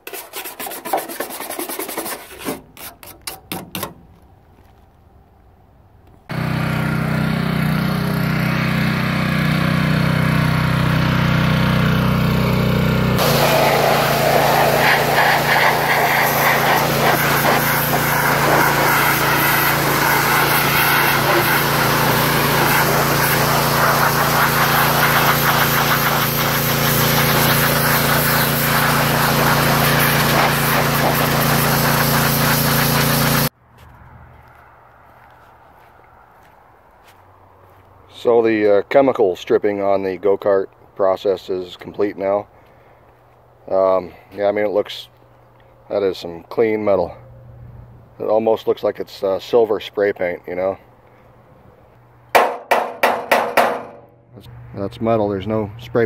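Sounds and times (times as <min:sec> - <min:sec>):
pressure washer engine droning: 0:06.3 - 0:33.6
high-pressure water spray hissing: 0:13.2 - 0:33.5.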